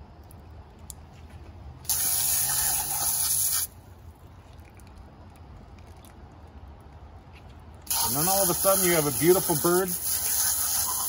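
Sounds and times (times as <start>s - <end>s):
hose nozzle water spray hiss: 1.8s - 3.7s, 7.9s - 11.0s.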